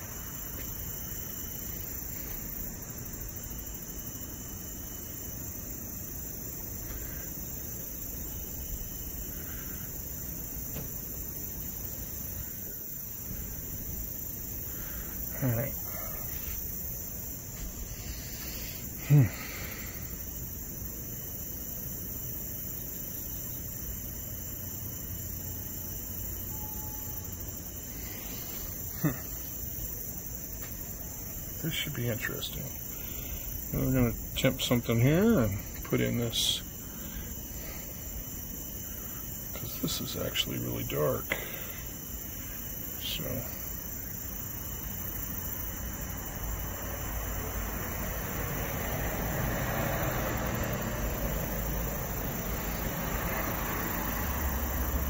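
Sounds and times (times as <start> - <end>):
crickets chirring: 0.0 - 55.0.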